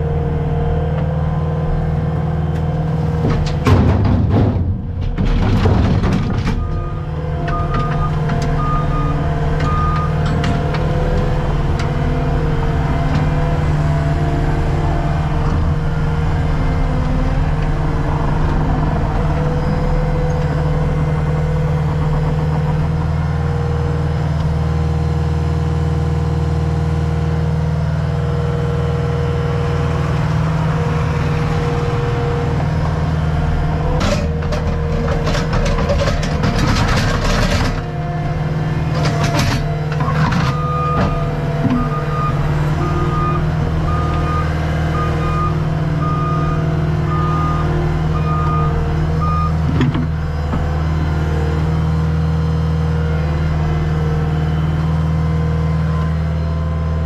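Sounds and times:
diesel engine running: 0:00.0 - 0:57.0
backup alarm beeping: 0:06.6 - 0:10.2.

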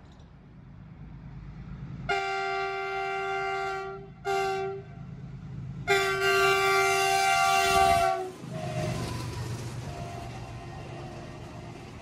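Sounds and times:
diesel locomotive rumble: 0:00.0 - 0:12.0
multi-tone train horn: 0:02.1 - 0:05.0, 0:05.8 - 0:09.2, 0:09.8 - 0:11.4.

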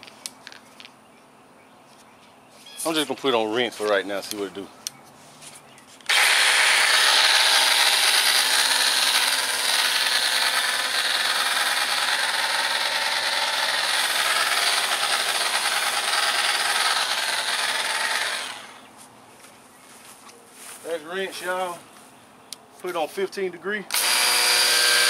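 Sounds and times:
pressure cleaner motor whirring: 0:06.1 - 0:18.9, 0:23.9 - 0:25.0.

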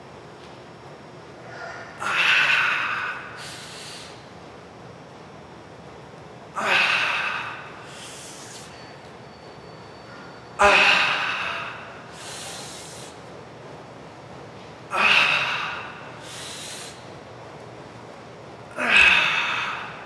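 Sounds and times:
man breathing forcefully: 0:01.4 - 0:04.3, 0:06.6 - 0:08.7, 0:10.6 - 0:13.2, 0:14.9 - 0:17.1, 0:18.8 - 0:20.0.

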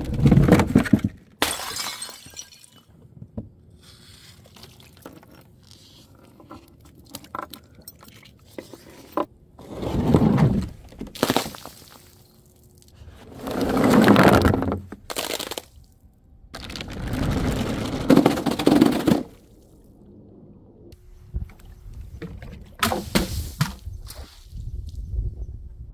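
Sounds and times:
glass bottles shattering: 0:01.4 - 0:02.9.

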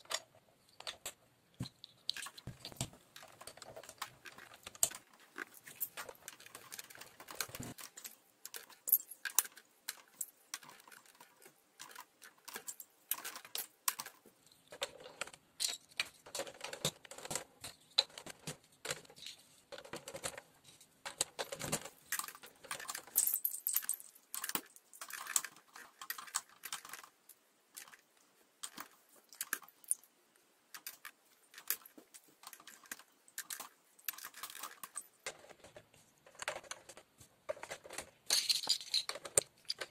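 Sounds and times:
plastic bricks clicking and clattering: 0:00.0 - 0:39.9.

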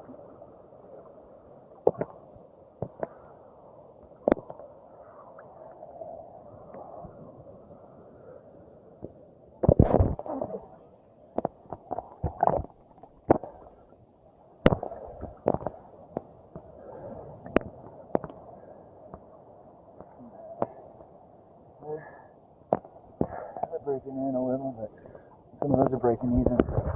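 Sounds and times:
sharp splashes and knocks: 0:01.8 - 0:02.2, 0:09.6 - 0:10.2, 0:14.6 - 0:15.8
muffled water sloshing: 0:09.0 - 0:19.3.

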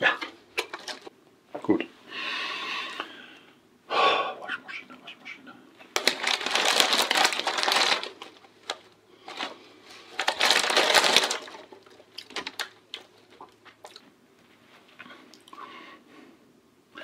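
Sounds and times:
foil bag crinkling: 0:00.6 - 0:01.1, 0:06.0 - 0:13.9
small crackles: 0:05.9 - 0:15.6.

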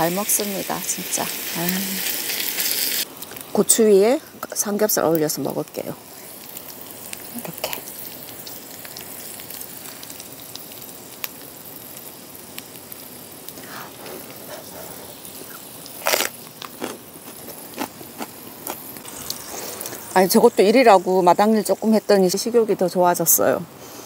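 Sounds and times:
pork sizzling on a grill pan: 0:00.0 - 0:24.0
sharp loud crunches: 0:16.0 - 0:17.0.

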